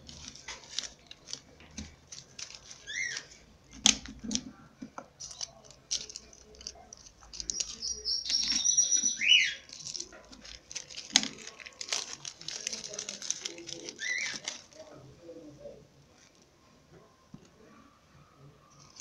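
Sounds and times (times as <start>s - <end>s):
birds chirping: 7.3s - 9.8s.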